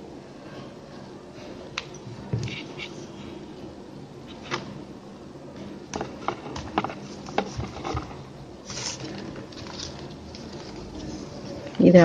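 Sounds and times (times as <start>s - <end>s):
plastic rustling slide: 8.6s - 11.5s.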